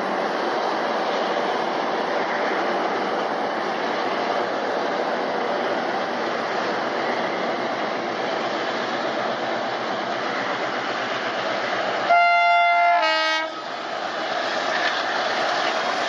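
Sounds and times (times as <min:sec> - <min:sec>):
diesel locomotive engines chugging: 0:00.0 - 0:16.0
running train noise: 0:00.0 - 0:16.0
locomotive air horn blast: 0:12.1 - 0:13.6.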